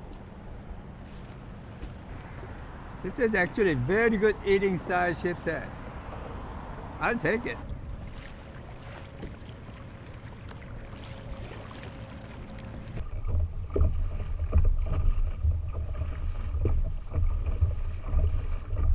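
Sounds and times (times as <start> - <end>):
water splashing against kayak: 7.6 - 18.9.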